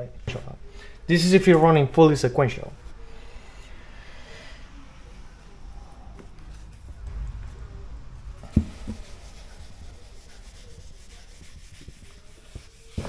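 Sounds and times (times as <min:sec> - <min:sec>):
sharp knock: 0:07.1 - 0:09.7
eraser rubbing on whiteboard: 0:08.5 - 0:13.0.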